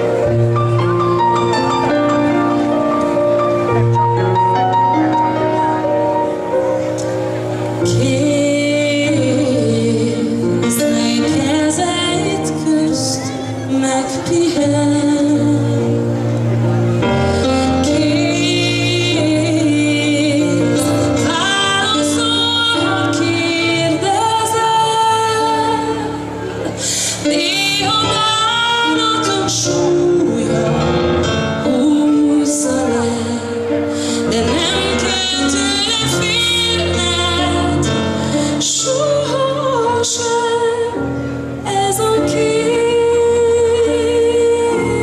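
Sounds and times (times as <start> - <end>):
instrumental accompaniment: 0.0 - 45.0
woman singing pop ballad: 7.8 - 16.1, 17.4 - 45.0.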